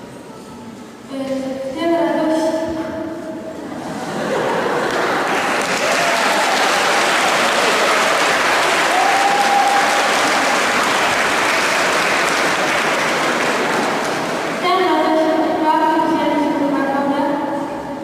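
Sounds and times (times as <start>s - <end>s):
audience applauding: 4.6s - 14.6s.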